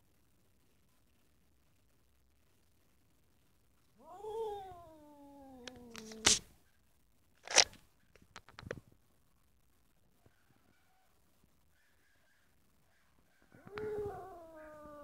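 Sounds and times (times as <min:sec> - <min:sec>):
cat yowling: 0:04.0 - 0:06.4, 0:13.5 - 0:15.0
cat hissing: 0:04.0 - 0:06.5
cat spitting: 0:05.8 - 0:06.4
short clicks: 0:07.4 - 0:07.8.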